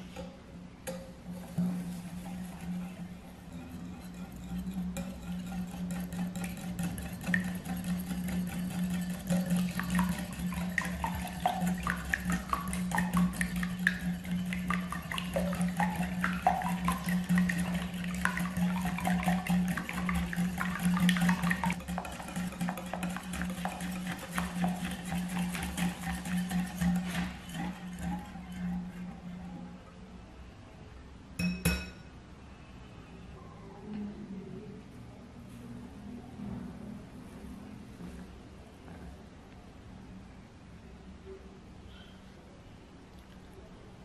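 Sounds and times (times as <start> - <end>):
whisk scraping glass bowl: 1.2 - 29.8.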